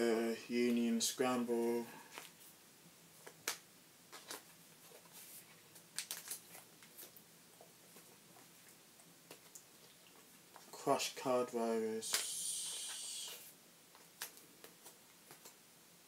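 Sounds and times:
cards rustling: 3.2 - 7.2, 12.1 - 15.6.

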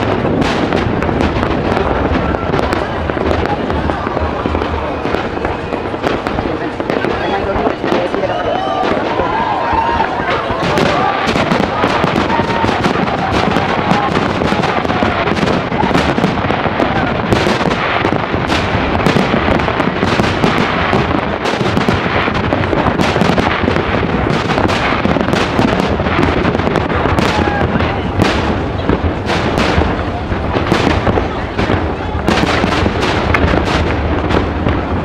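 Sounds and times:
fireworks bursting and crackling: 0.0 - 35.0.

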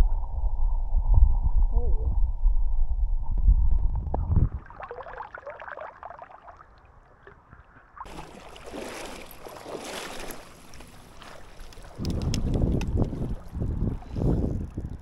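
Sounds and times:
muffled underwater rumble: 0.0 - 4.7
faint underwater clicks: 10.0 - 15.0.

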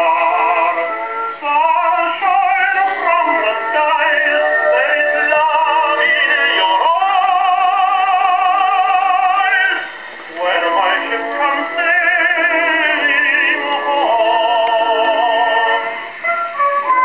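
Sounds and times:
instrumental accompaniment: 0.0 - 17.0
tenor singing with vibrato: 0.0 - 17.0.

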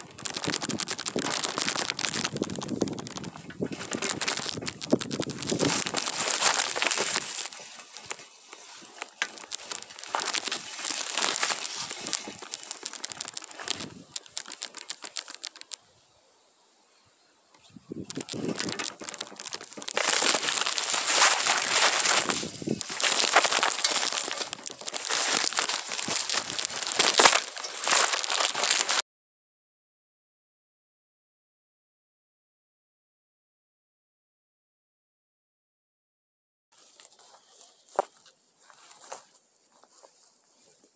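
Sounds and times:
pine branches rustling and crackling: 0.0 - 15.9, 17.6 - 29.0, 36.8 - 40.9.

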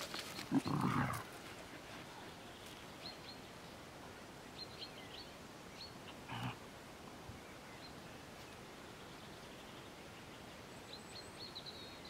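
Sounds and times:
small birds chirping: 0.0 - 3.8, 7.3 - 12.0
faint outdoor hiss: 0.0 - 12.0.

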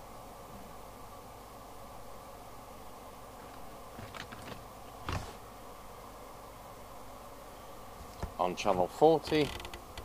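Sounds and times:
faint hiss: 0.0 - 10.0
clipboard knock and rustle: 4.0 - 5.4.

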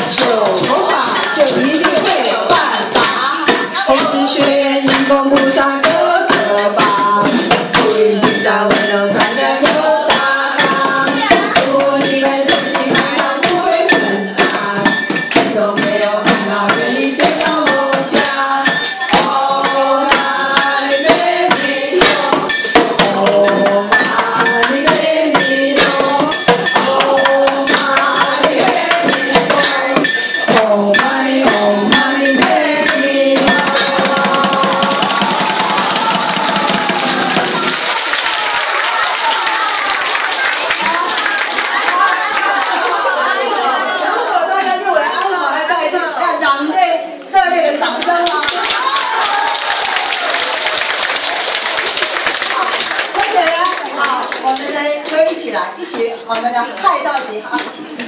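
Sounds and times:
percussion on buckets and brushes: 0.0 - 42.6, 47.9 - 58.0
group singing: 0.0 - 46.4.

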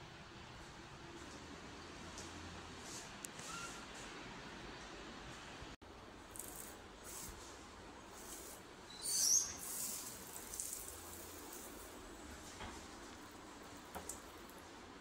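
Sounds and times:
faint steady hiss: 4.2 - 15.0.

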